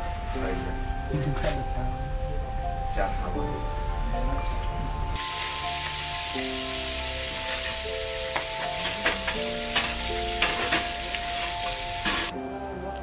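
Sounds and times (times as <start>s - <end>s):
soft background music: 0.0s - 13.0s
wok frying sizzle: 4.9s - 12.4s.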